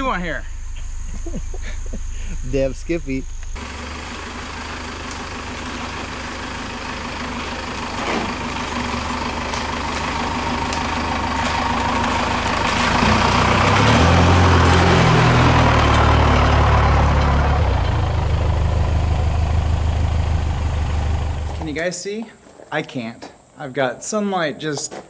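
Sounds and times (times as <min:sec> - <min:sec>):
pickup truck engine running: 0:03.5 - 0:21.8.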